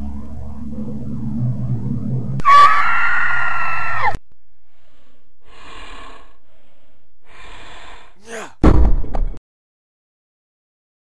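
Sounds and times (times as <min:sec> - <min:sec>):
noisy bursts: 0:00.0 - 0:04.2
scream sound effect: 0:00.0 - 0:04.2.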